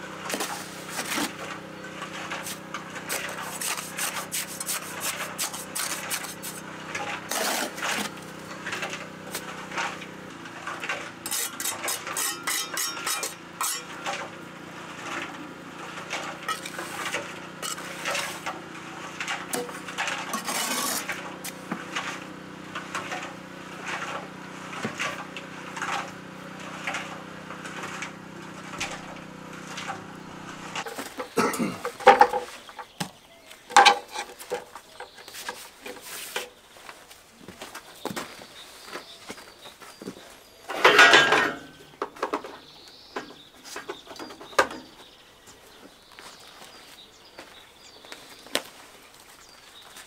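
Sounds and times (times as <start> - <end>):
trowel scraping wet mortar: 0.3 - 32.0
trowel clinking on stone: 11.3 - 14.1.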